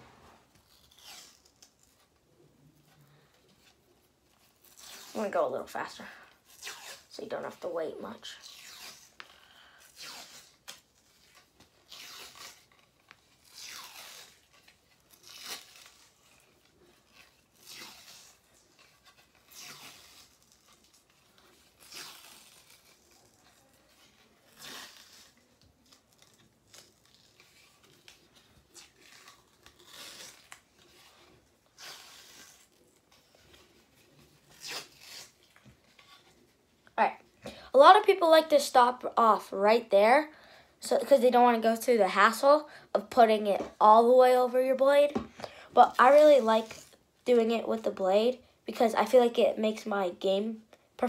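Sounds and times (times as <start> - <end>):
tape ripping rasp: 0.0 - 2.2, 2.8 - 36.5.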